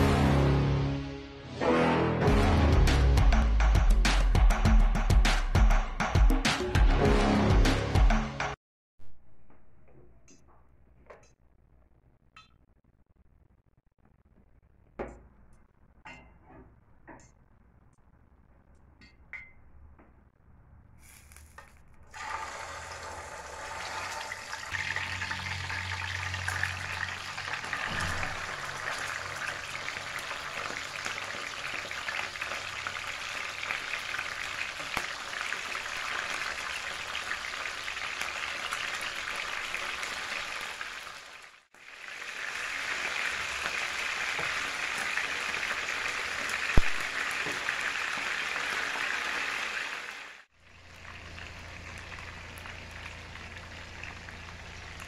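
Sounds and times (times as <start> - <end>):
fish sizzling in hot oil: 21.0 - 55.0.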